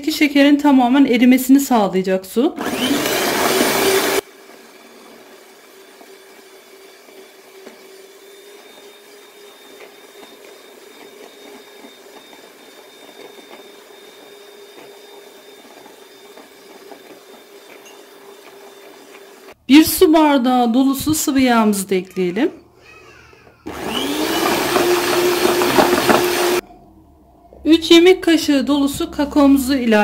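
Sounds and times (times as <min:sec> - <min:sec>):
electric hand mixer beating: 0:02.6 - 0:19.6, 0:23.6 - 0:26.6.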